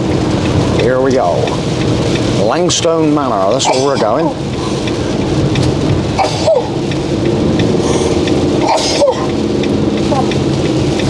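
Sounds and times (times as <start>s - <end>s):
engine and tyre drone: 0.0s - 11.0s
rain on windscreen: 0.0s - 11.0s
windscreen wipers sweeping: 0.0s - 11.0s.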